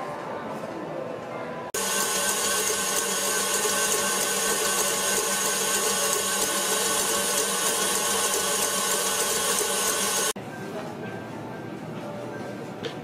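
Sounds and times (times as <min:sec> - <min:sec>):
stand mixer motor whine: 0:01.8 - 0:10.4
whisk whipping egg whites: 0:01.8 - 0:10.4.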